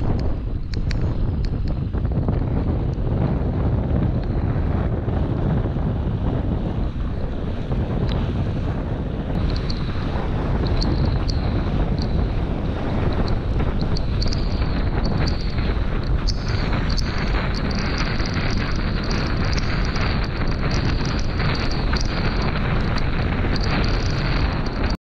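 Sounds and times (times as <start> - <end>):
small sharp ticks: 0.0 - 1.8, 9.4 - 12.3, 13.0 - 25.0
water rushing under hull: 0.0 - 25.0
wind buffeting microphone: 0.0 - 25.0.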